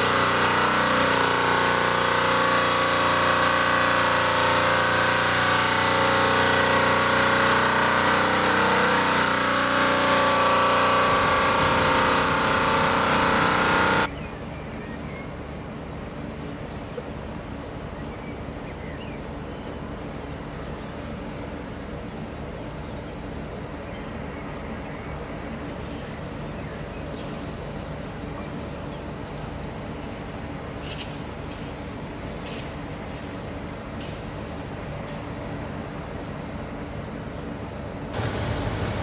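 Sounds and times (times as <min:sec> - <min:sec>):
construction machinery droning: 0:00.0 - 0:39.0
small birds chirping: 0:14.0 - 0:35.2.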